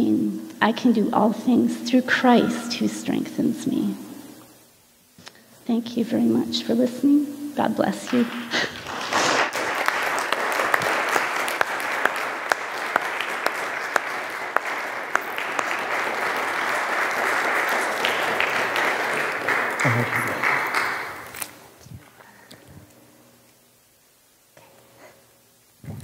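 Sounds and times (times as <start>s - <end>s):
congregation applauding: 8.1s - 21.6s.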